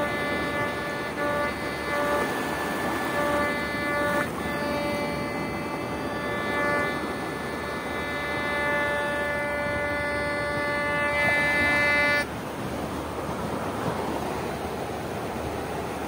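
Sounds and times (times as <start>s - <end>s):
metal detector buzzy tone: 0.0s - 12.3s
surf: 0.0s - 16.0s
wind: 0.0s - 16.0s.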